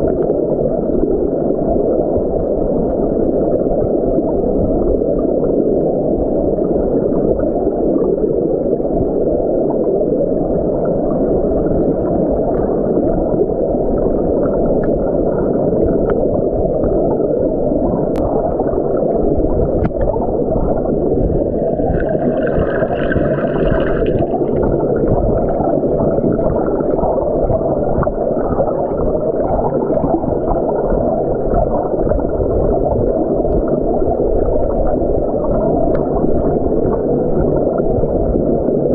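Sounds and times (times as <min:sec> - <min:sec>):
muffled underwater stream rush: 0:00.0 - 0:38.9.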